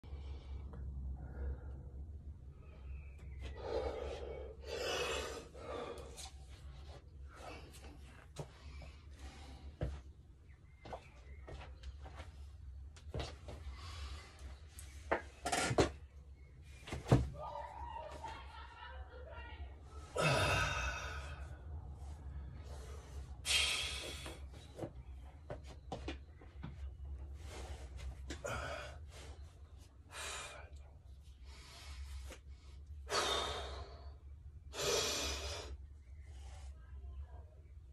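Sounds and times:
man breathing hard: 0.0s - 10.1s, 20.0s - 24.8s, 27.4s - 36.0s.

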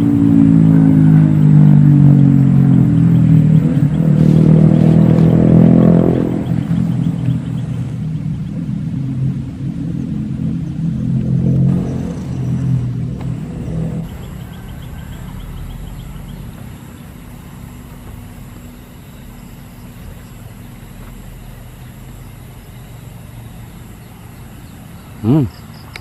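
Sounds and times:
motor engine humming: 0.0s - 26.0s
faint high chirps: 14.0s - 17.6s.

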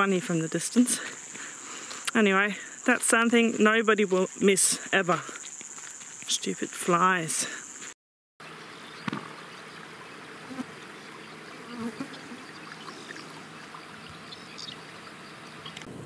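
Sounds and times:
flies buzzing: 7.6s - 15.9s.

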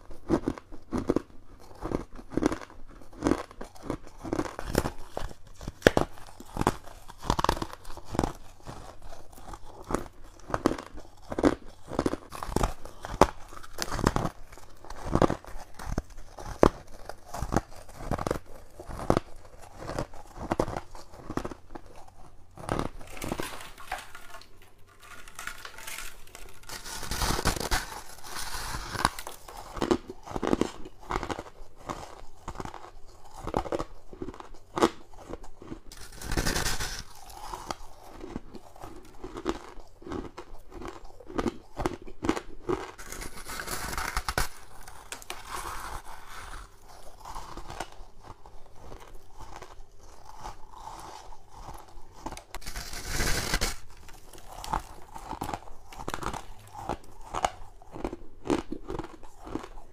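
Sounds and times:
crunching frost bites: 9.5s - 33.8s.

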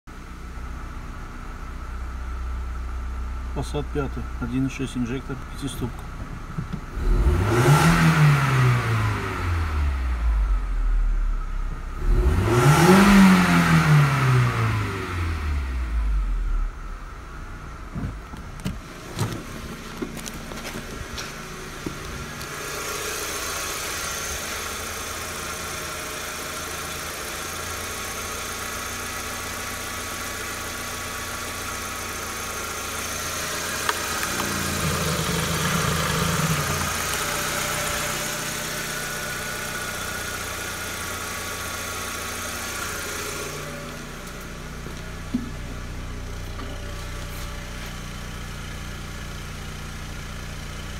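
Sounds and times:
car engine idling: 0.1s - 12.2s, 12.9s - 50.9s
car engine revving: 6.8s - 16.8s, 18.8s - 48.8s
high-pitched mechanical noise: 33.9s - 38.3s.

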